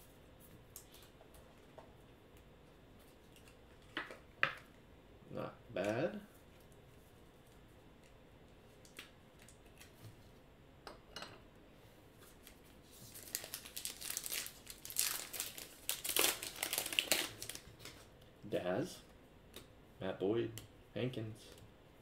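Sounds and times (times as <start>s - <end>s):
wrapper crinkling and tearing: 12.4s - 18.1s.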